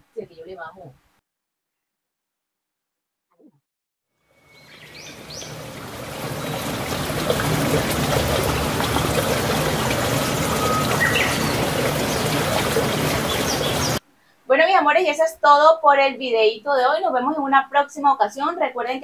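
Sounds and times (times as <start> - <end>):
birds chirping: 4.3 - 14.0
stream flowing: 4.5 - 14.0.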